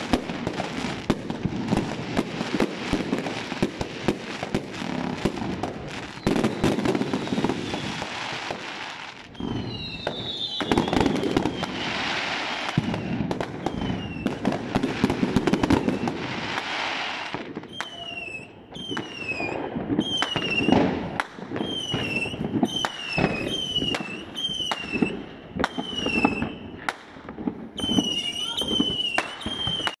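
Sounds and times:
fireworks crackling and banging: 0.0 - 30.0
high falling whistle: 9.3 - 12.0, 12.6 - 14.4.

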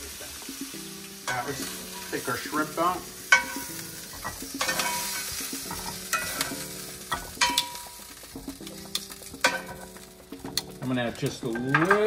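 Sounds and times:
shrimp sizzling in hot oil: 0.0 - 12.0
metal tongs clinking on pan: 3.3 - 8.1, 8.7 - 12.0.

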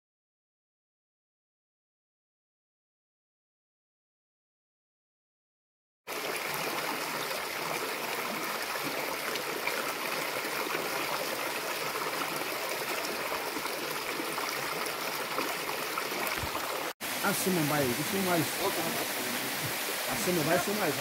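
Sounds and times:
creek water running over rocks: 6.1 - 21.0.

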